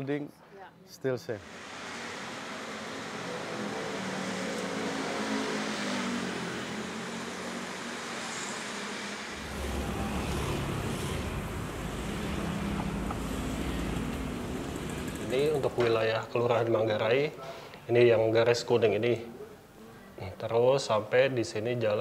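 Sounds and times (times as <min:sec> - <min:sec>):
motorcycles and cars passing: 0:01.4 - 0:16.1.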